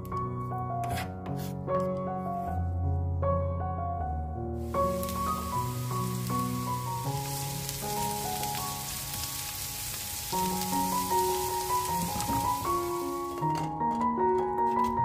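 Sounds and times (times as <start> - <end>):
soft piano music: 0.0 - 15.0
vegetables sizzling in frying pan: 4.6 - 13.7.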